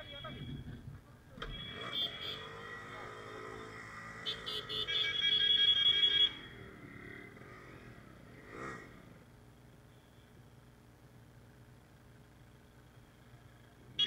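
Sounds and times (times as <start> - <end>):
motorcycle horn honking: 1.4 - 2.7, 4.0 - 6.5.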